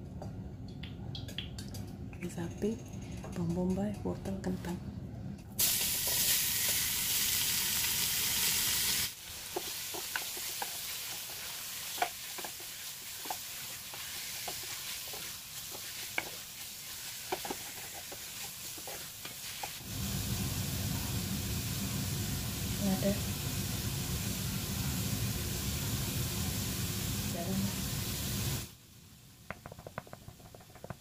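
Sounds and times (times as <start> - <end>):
beef sizzling in a pot: 5.6 - 28.8
wooden spatula clacking on pot: 9.5 - 16.4, 17.2 - 19.7, 29.5 - 31.0.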